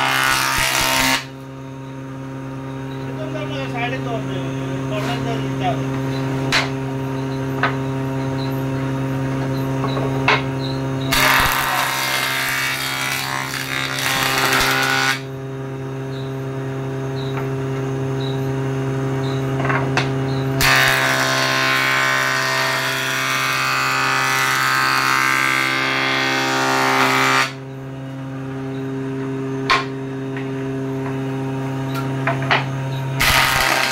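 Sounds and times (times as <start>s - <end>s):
wood being shaved: 0.0s - 1.3s, 11.1s - 15.3s, 20.6s - 27.6s, 33.2s - 33.9s
jointer-planer motor hum: 20.0s - 33.9s.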